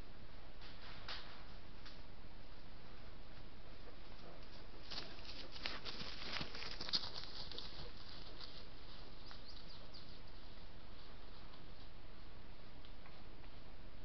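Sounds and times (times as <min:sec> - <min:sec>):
animal rustling through brush: 0:04.4 - 0:09.7.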